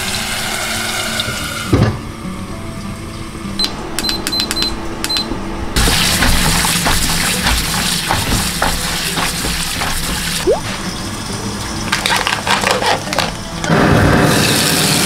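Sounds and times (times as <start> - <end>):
tap water running on lettuce: 5.8 - 11.0.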